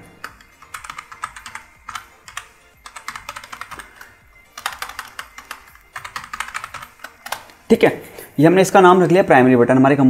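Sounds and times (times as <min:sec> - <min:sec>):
computer keyboard typing: 0:00.0 - 0:07.8.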